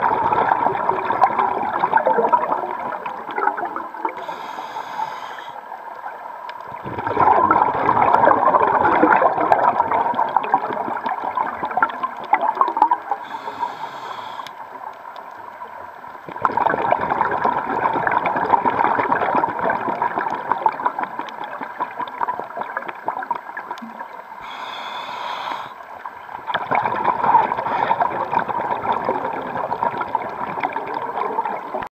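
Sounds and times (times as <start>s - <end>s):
bubbling exhaust underwater: 0.0s - 14.8s, 16.2s - 31.9s
regulator inhale hiss: 4.2s - 5.7s, 13.2s - 14.7s, 24.4s - 26.0s.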